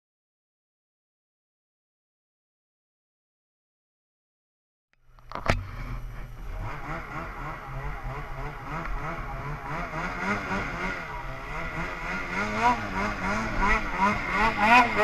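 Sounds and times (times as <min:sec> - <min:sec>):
snowmobile engine revving: 0:05.4 - 0:15.0.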